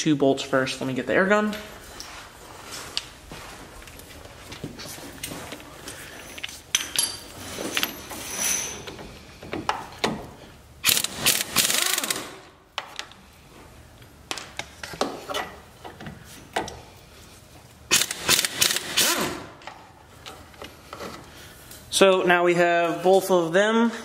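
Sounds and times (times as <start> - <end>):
pneumatic air tool bursts: 10.8 - 12.4, 17.9 - 19.6.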